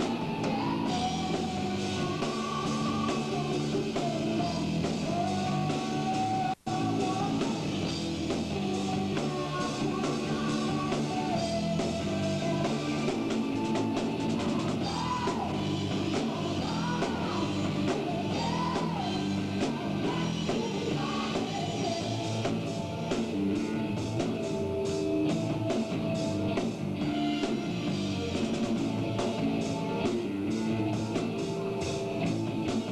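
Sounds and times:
distorted electric guitars: 0:00.0 - 0:32.9
drum kit: 0:00.0 - 0:32.9.

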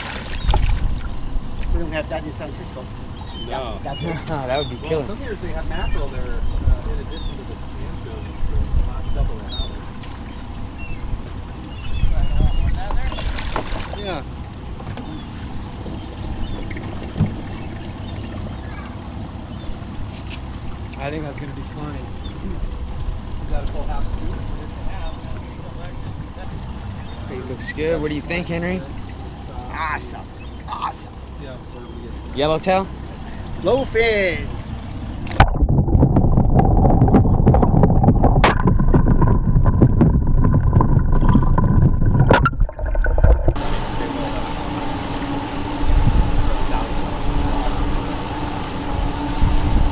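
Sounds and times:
water pouring and bubbling: 0:00.0 - 0:01.8, 0:09.9 - 0:14.3, 0:34.7 - 0:44.1
muffled underwater rumble: 0:00.3 - 0:33.6, 0:34.5 - 0:49.9
low rumble: 0:34.4 - 0:44.4.

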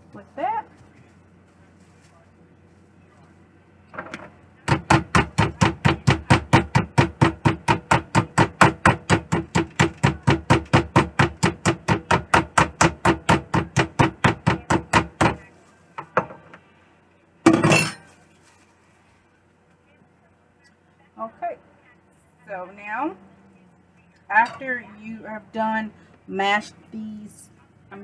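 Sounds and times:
mallet pounding meat on board: 0:04.6 - 0:15.4
plastic wrap rustle: 0:18.1 - 0:19.4.

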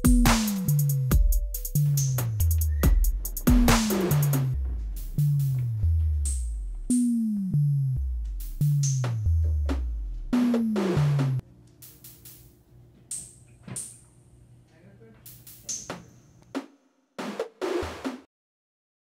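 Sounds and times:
snare and cymbal hits: 0:00.0 - 0:05.7, 0:08.3 - 0:14.0, 0:15.3 - 0:18.3
electronic bass line: 0:00.0 - 0:11.4
deep bass drum hits: 0:02.8 - 0:06.9.

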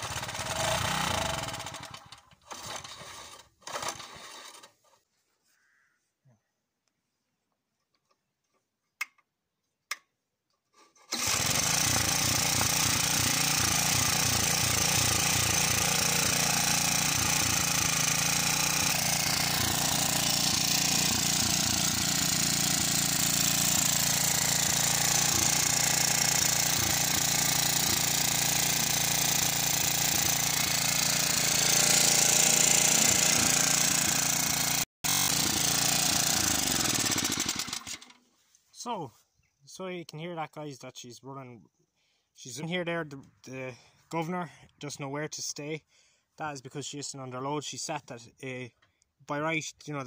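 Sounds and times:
petrol engine running: 0:00.0 - 0:04.2, 0:11.1 - 0:38.1.

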